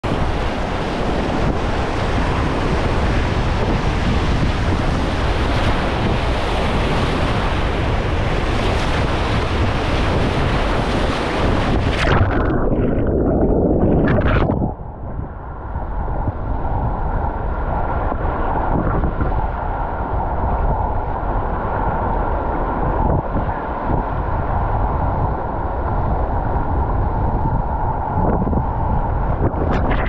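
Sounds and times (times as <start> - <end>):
water splash: 10.9 - 14.8
muffled underwater sound: 11.8 - 15.2, 29.5 - 30.0.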